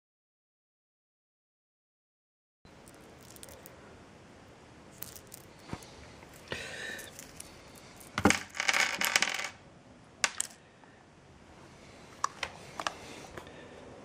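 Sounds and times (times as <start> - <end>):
metal screws clinking: 2.7 - 3.7, 5.0 - 5.6, 6.3 - 9.5.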